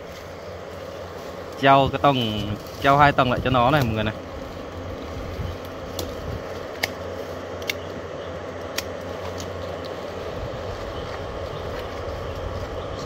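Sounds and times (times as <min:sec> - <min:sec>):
low hum: 0:00.0 - 0:13.0
pruning shears snipping twigs: 0:03.6 - 0:04.1, 0:05.6 - 0:08.0, 0:08.6 - 0:10.0.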